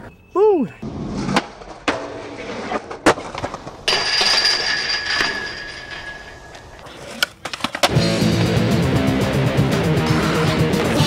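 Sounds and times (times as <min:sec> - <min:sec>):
skateboard grinding metal rail: 0:00.9 - 0:07.9
skateboard clacking: 0:06.4 - 0:08.0.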